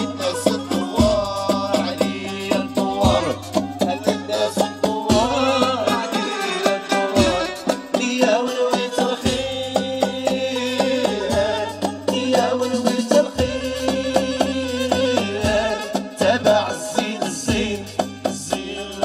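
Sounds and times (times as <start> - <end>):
synth bass: 0.0 - 6.1
drum kit beat: 0.0 - 19.0
hand drum: 0.0 - 19.0.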